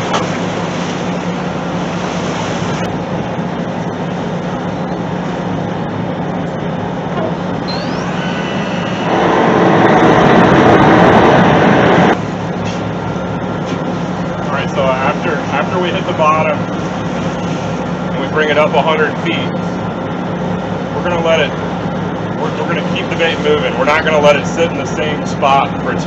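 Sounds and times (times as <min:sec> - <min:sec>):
boat engines droning: 0:00.0 - 0:26.0
loud rushing noise: 0:07.4 - 0:12.3.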